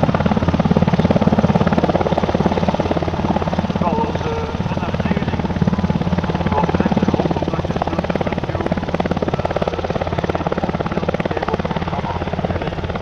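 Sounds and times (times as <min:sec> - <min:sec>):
helicopter rotor beating: 0:00.0 - 0:13.0.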